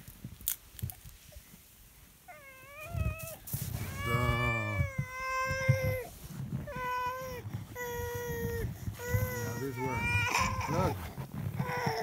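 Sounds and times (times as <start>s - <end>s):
cat meowing: 2.3s - 6.1s.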